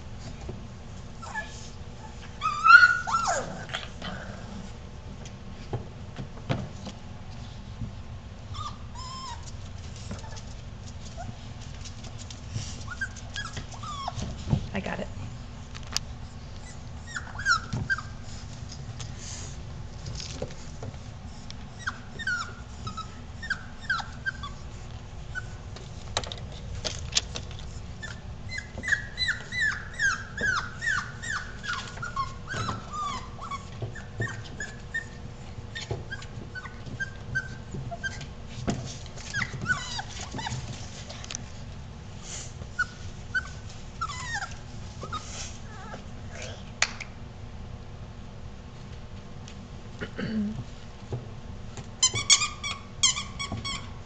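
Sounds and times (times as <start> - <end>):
puppies whimpering and squealing: 1.2 - 4.2, 8.5 - 9.6, 12.8 - 14.3, 16.6 - 18.4, 21.7 - 25.6, 28.0 - 38.6, 39.2 - 40.8, 42.7 - 46.6.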